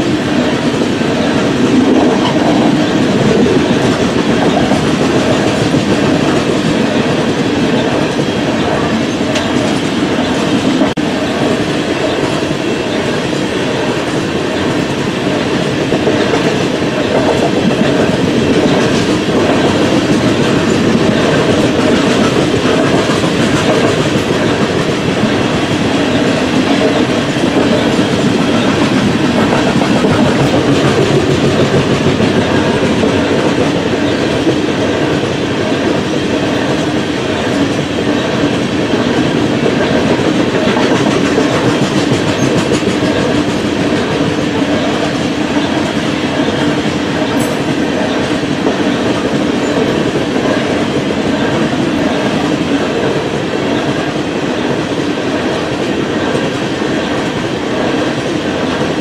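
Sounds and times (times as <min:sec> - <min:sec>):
train wheels clacking on rails: 0:00.0 - 0:59.0.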